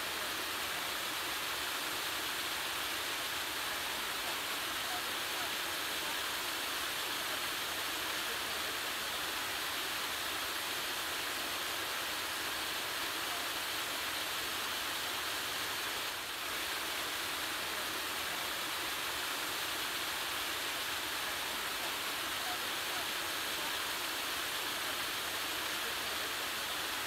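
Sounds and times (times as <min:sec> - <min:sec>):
creek water flowing: 0:00.0 - 0:27.0.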